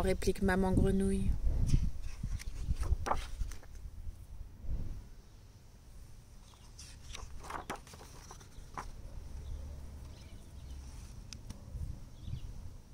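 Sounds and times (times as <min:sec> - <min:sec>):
book page turning: 0:01.7 - 0:03.8, 0:06.4 - 0:09.0.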